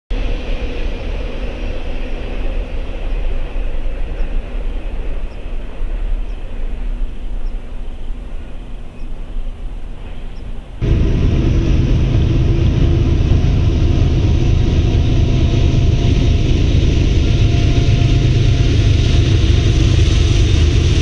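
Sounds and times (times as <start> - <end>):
distant traffic rumble: 0.1 - 21.0.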